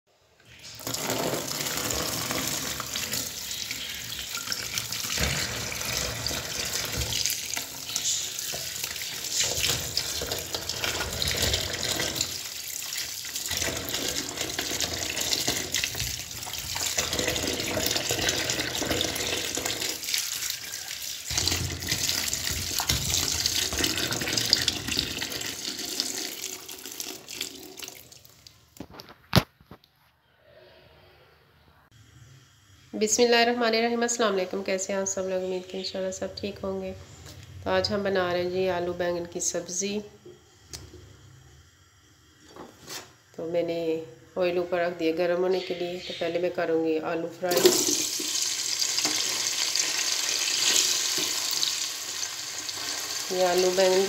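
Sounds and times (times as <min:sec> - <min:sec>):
tap water running into bowl: 0:00.8 - 0:28.4, 0:47.5 - 0:54.0.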